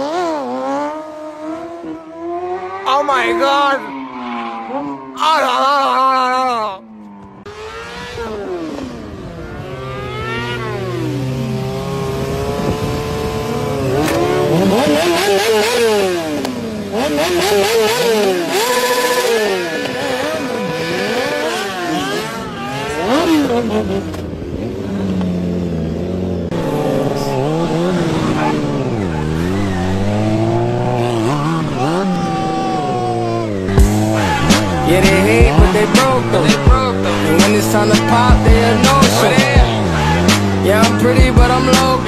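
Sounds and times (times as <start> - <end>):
motorcycle engines revving: 0.0 - 42.0.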